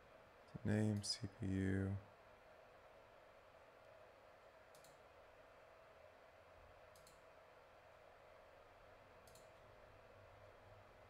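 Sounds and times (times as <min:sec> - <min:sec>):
computer mouse clicks: 0:04.7 - 0:05.0, 0:06.9 - 0:07.3, 0:09.2 - 0:09.6.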